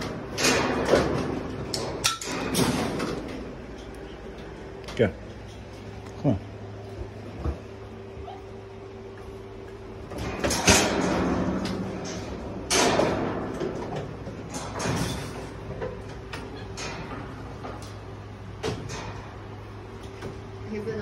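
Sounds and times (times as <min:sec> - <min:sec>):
loud clattering hits: 0:10.2 - 0:15.9.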